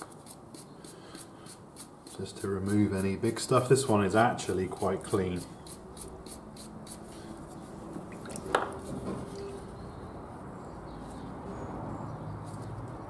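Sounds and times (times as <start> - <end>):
wire brush scrubbing metal: 0.0 - 7.1
traffic: 3.8 - 13.0.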